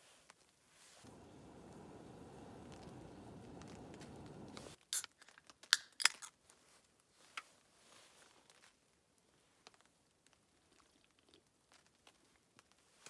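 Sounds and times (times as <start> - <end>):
faint fizzing hiss: 0.7 - 5.0.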